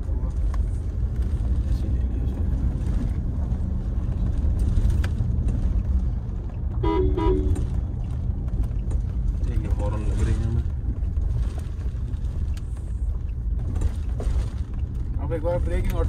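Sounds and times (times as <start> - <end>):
low road rumble: 0.0 - 16.0
car horn toots: 6.8 - 7.8.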